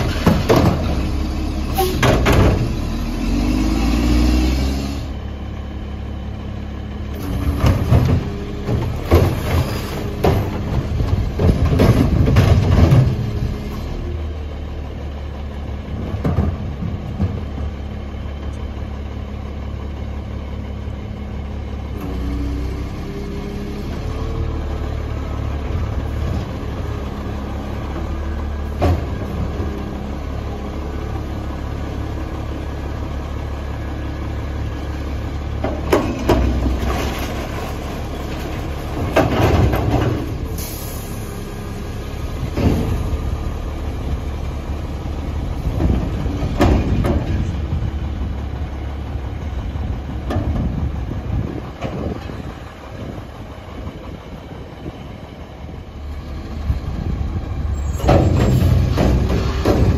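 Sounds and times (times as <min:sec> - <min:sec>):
cart arm clanks and knocks: 0:00.0 - 0:02.8, 0:35.6 - 0:40.4, 0:45.6 - 0:47.8, 0:57.8 - 0:59.9
garbage truck diesel engine humming: 0:00.0 - 0:59.9.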